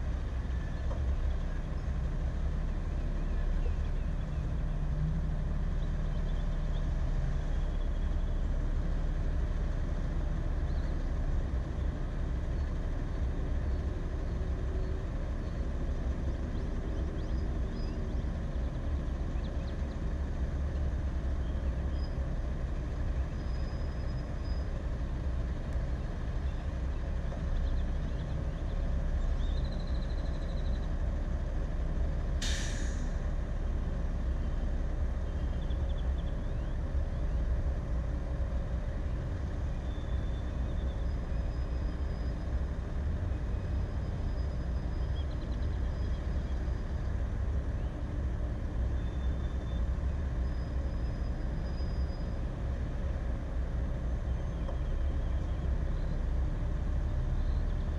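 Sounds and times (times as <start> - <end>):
idling vehicles rumbling: 0.0 - 57.9
air-brake hiss: 32.4 - 33.2.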